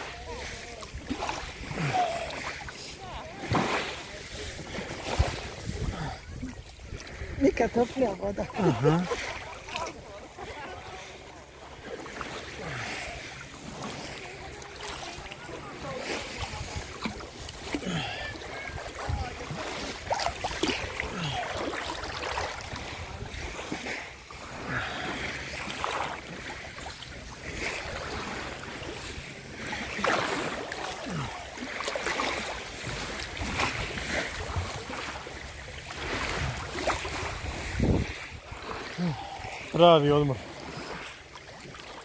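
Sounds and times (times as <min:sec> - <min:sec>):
seawater lapping and splashing: 0:00.0 - 0:42.0.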